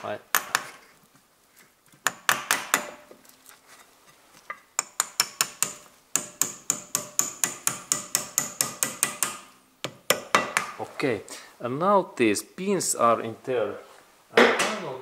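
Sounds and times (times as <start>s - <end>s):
hammer tapping metal pin: 4.8s - 10.7s.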